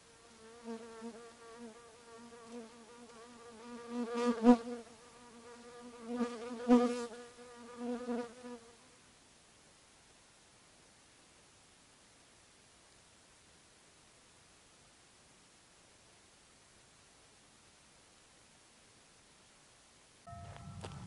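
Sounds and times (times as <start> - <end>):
flying insect buzzing: 0.0 - 8.9.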